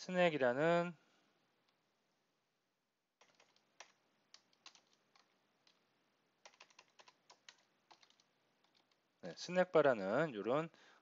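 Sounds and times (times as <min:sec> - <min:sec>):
keyboard typing: 0:03.2 - 0:09.1.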